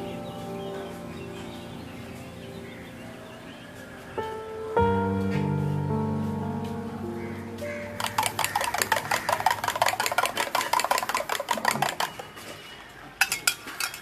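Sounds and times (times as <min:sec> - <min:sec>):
background music: 0:00.0 - 0:12.1
eggs beaten against a cup: 0:08.0 - 0:12.4
utensil clinking: 0:08.0 - 0:14.0.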